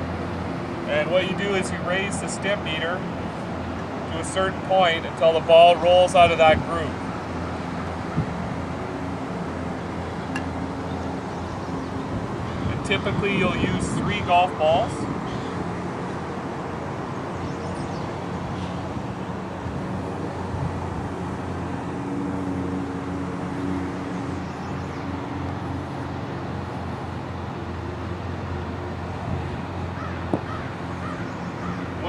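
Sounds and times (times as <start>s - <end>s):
distant motor engines droning: 0.0s - 32.0s.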